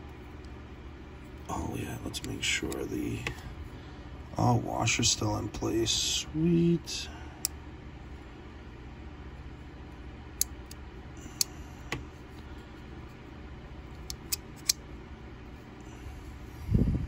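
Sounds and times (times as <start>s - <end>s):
low steady hum: 0.0s - 17.0s
folding knife clicks: 14.0s - 14.8s.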